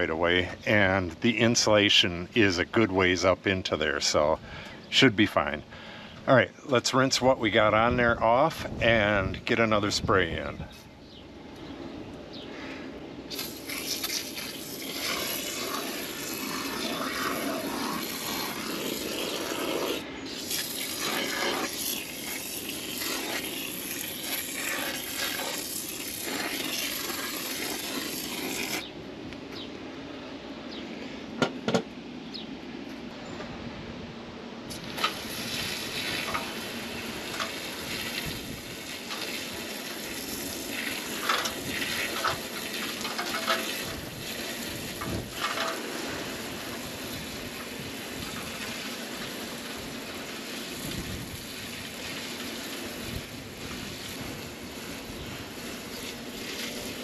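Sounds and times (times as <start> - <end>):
hose spray hissing and splashing: 13.3 - 28.9, 34.7 - 57.0.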